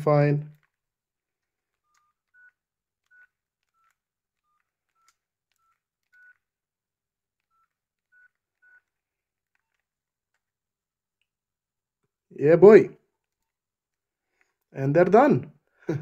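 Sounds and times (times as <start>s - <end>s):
phone keypad beeps: 1.8s - 6.5s, 7.4s - 9.0s.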